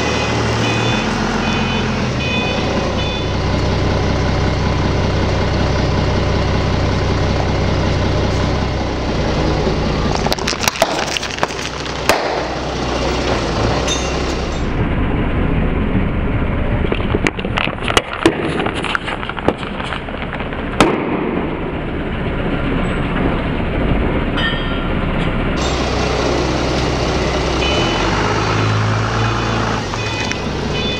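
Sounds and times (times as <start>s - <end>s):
forklift engine running: 0.0s - 30.9s
paper cups crunching flat: 10.2s - 12.4s.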